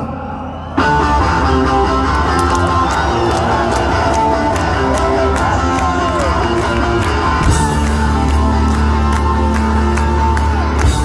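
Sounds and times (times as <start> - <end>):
electric guitar chords: 0.8 - 11.0
drum beats: 2.3 - 11.0.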